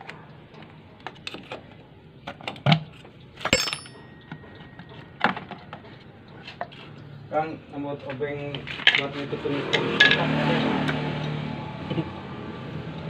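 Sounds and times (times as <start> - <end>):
metal tools knocking on engine cover: 3.5 - 6.0.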